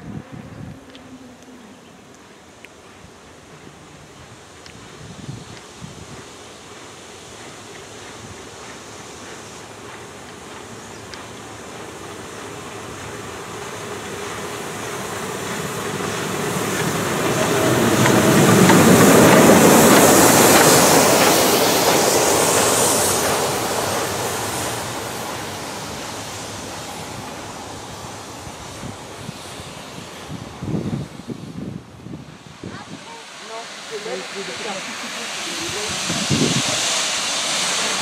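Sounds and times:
steam locomotive passing: 0:00.0 - 0:38.0.

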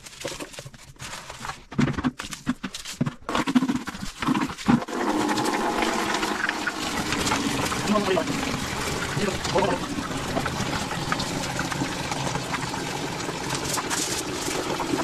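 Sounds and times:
brush scrubbing tiles: 0:00.0 - 0:15.0
water running: 0:03.3 - 0:15.0.

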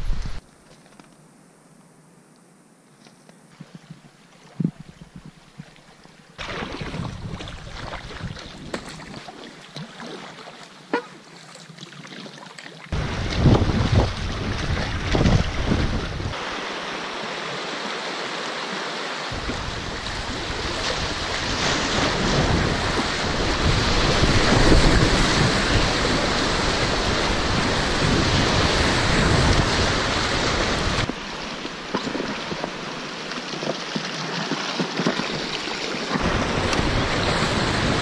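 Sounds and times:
rushing river water: 0:04.2 - 0:38.0
wind buffeting microphone: 0:06.8 - 0:09.2, 0:13.0 - 0:16.4, 0:19.3 - 0:32.7, 0:36.2 - 0:38.0.

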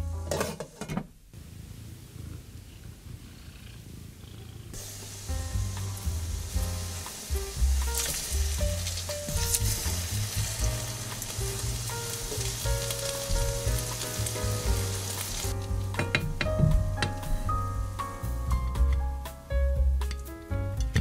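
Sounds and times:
patties sizzling in oil: 0:04.8 - 0:19.4
soft background music: 0:04.8 - 0:21.0
spatulas tapping and scraping: 0:15.9 - 0:17.3.

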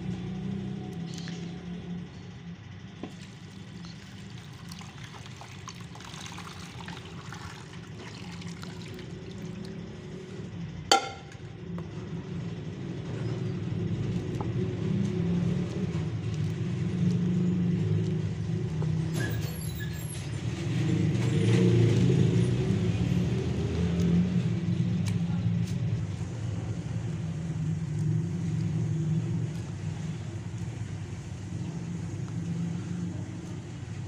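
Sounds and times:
low steady rumble: 0:00.0 - 0:34.0
water pouring and splashing: 0:03.1 - 0:10.2
sharp knock: 0:10.9 - 0:11.3.

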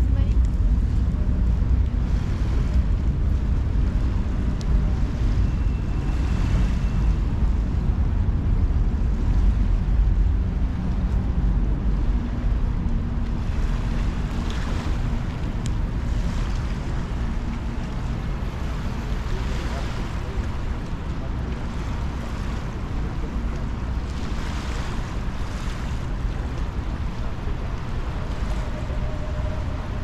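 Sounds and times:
outdoor background noise: 0:00.0 - 0:30.0
wind buffeting microphone: 0:00.0 - 0:30.0.

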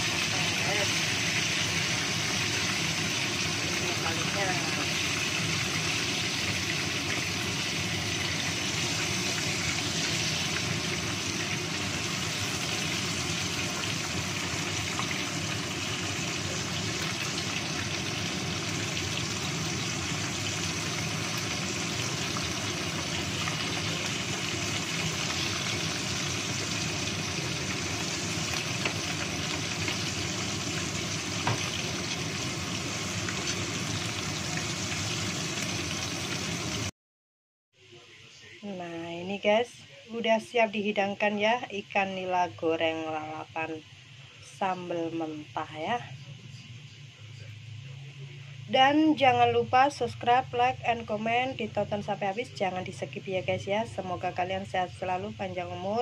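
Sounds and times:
fish sizzling in hot oil: 0:00.0 - 0:36.9.

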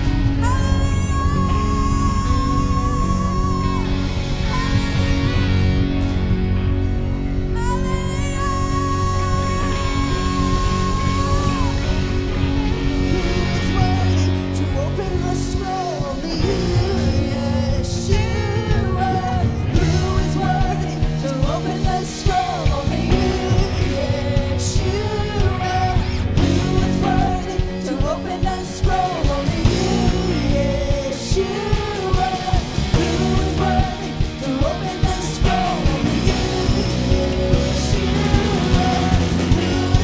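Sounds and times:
woman singing lead: 0:00.0 - 0:05.7, 0:07.4 - 0:40.0
rock band playing: 0:00.0 - 0:40.0.

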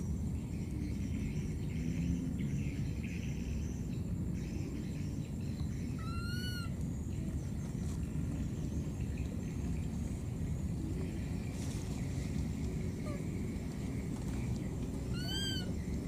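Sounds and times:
low outdoor rumble: 0:00.0 - 0:16.0
baby monkey calling: 0:05.8 - 0:06.7, 0:15.0 - 0:15.8.

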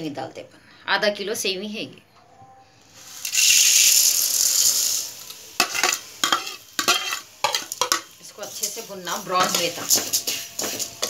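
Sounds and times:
vermicelli hissing in hot pan: 0:02.8 - 0:11.0
spatula scraping metal pan: 0:05.6 - 0:11.0.

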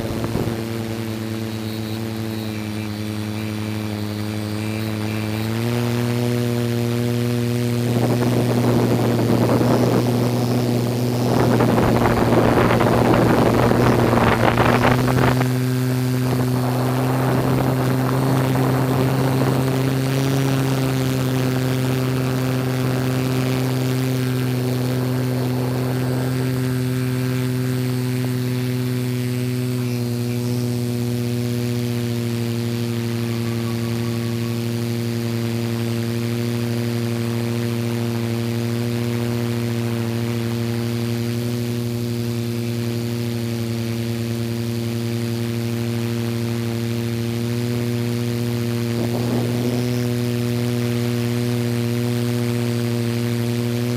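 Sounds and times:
drone propellers humming: 0:00.0 - 0:53.9.

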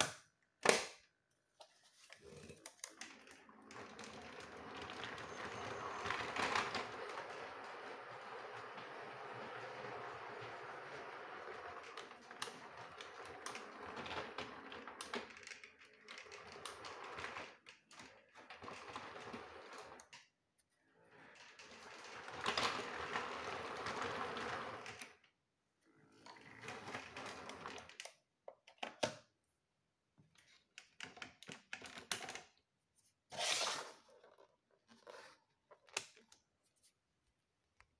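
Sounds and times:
toy train motor and wheels clattering: 0:03.3 - 0:17.7.

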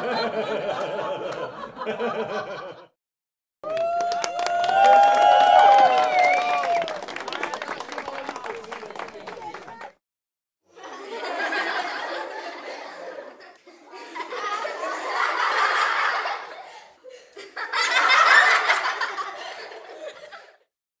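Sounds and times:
laughter: 0:00.0 - 0:03.0, 0:10.7 - 0:20.7.

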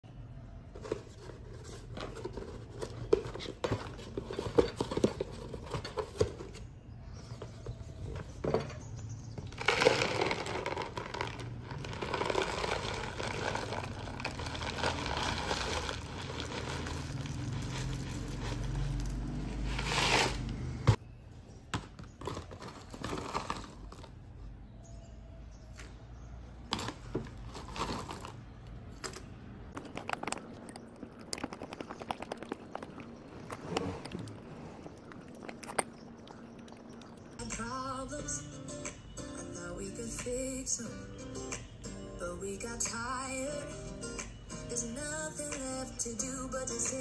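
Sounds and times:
packaging crinkling: 0:09.5 - 0:20.6, 0:26.7 - 0:28.6.

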